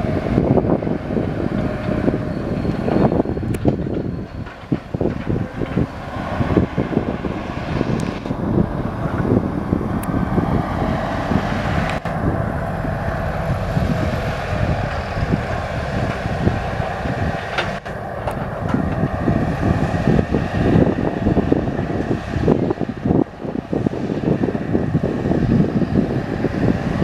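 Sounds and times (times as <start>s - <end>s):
combine harvester rumbling: 0.0s - 27.0s
wind buffeting microphone: 0.0s - 27.0s.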